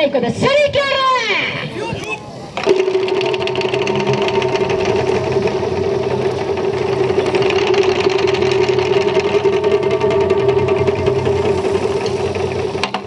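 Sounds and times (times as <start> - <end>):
ringing drum tone: 2.6 - 12.8
taiko drums beaten fast: 2.6 - 13.0.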